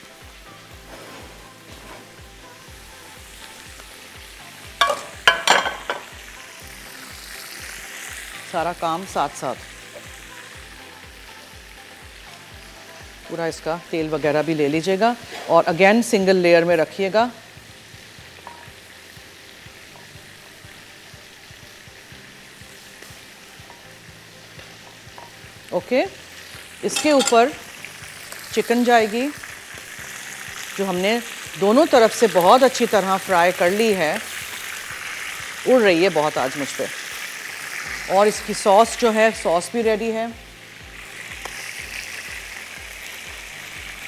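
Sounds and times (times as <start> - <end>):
oil sizzling in frying pan: 0.0 - 44.0
metal utensil clinks in pan: 4.8 - 6.1, 26.8 - 27.6.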